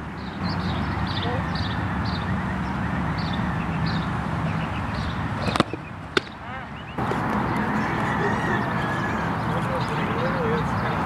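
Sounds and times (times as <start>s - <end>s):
birds chirping: 0.0s - 11.0s
outdoor background noise: 0.0s - 11.0s
sharp pops: 5.4s - 6.4s.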